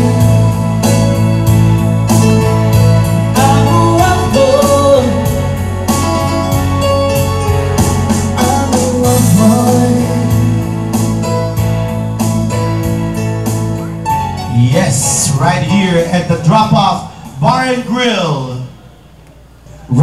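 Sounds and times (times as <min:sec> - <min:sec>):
man singing: 0:00.0 - 0:00.9, 0:03.3 - 0:05.6, 0:08.2 - 0:11.0
reggae band playing: 0:00.0 - 0:19.7.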